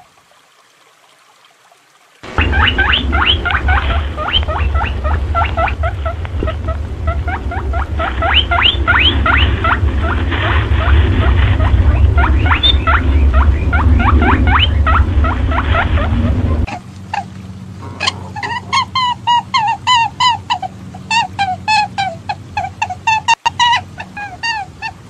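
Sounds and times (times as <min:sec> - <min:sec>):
high rising squeaks: 0:02.2 - 0:16.8
steady low rumble: 0:02.2 - 0:25.0.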